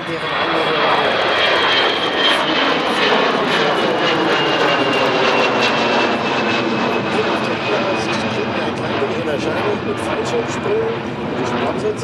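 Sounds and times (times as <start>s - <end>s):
jet engines passing overhead: 0.0s - 12.0s.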